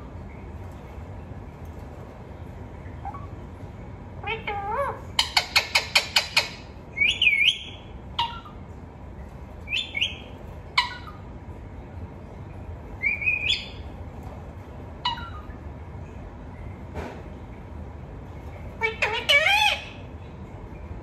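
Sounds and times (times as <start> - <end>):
parakeet whistled calls: 4.2 - 8.6, 9.7 - 11.2, 13.0 - 13.8, 15.0 - 15.5, 18.8 - 20.0
parakeet chattering: 4.2 - 8.7, 9.7 - 11.4, 13.0 - 13.9, 15.0 - 15.5, 18.8 - 20.1.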